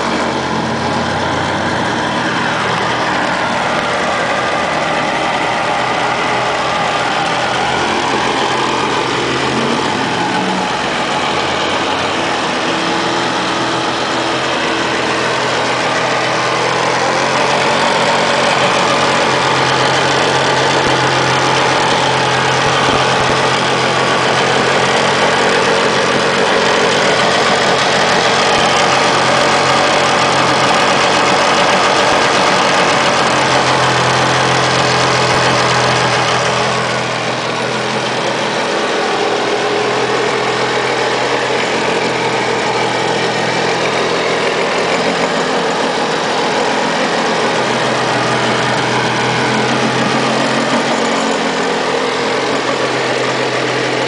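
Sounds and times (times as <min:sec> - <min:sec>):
jet ski engine idling: 0:00.0 - 0:54.0.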